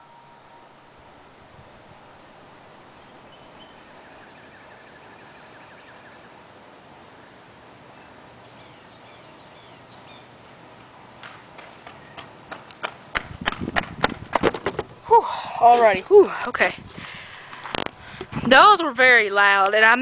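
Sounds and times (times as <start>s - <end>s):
faint bird chirps: 0.0s - 0.8s, 3.0s - 6.5s
faint background noise: 0.0s - 20.0s.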